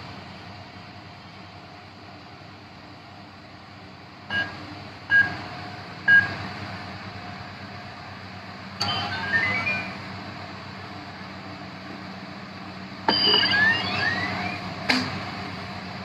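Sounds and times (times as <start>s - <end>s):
electronic keypad beeping: 13.1s - 14.6s.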